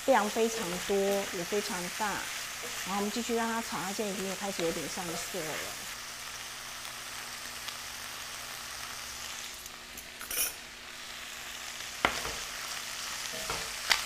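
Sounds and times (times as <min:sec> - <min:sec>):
food sizzling in hot oil: 0:00.0 - 0:14.0
crackle: 0:04.1 - 0:10.4, 0:11.2 - 0:14.0.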